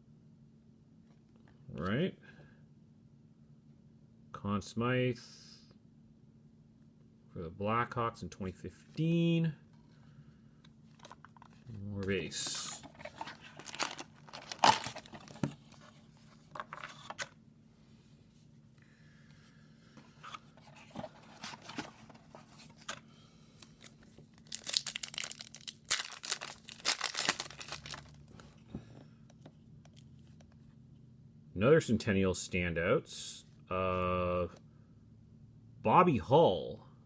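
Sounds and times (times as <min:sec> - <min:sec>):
foil wrapper crinkling and tearing: 0:13.2 - 0:15.3, 0:23.8 - 0:28.3.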